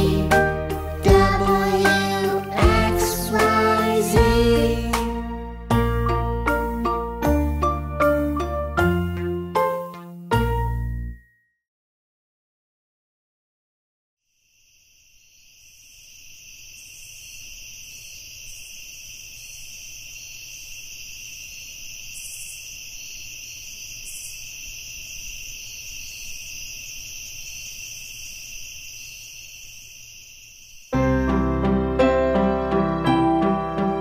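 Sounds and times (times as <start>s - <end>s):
crickets chirring: 14.3s - 31.0s.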